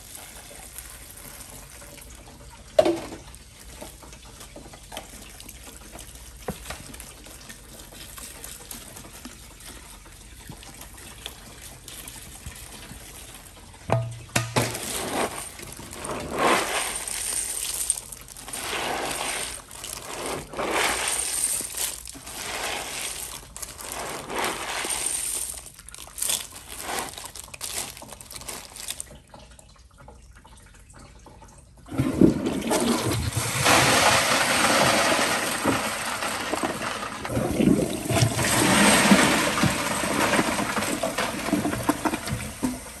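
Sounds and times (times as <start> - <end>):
toilet flushing: 0.0 - 30.1, 31.6 - 43.0
candy and wrappers rattling: 14.6 - 29.2, 38.2 - 42.2.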